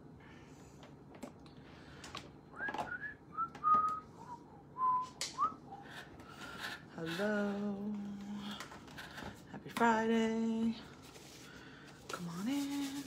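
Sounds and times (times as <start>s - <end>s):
person whistling: 2.5s - 5.8s.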